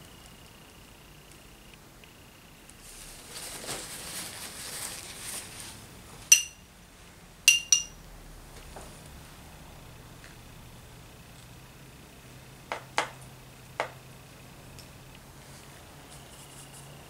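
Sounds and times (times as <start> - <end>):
paper towel rustling: 2.8 - 6.2
hard object clinking on dish: 6.3 - 6.6, 7.5 - 8.0.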